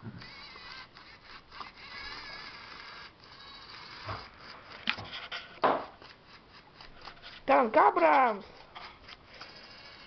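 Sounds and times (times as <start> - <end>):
toy tank motors whirring: 0.2 - 10.0
sharp knocks: 5.6 - 6.0.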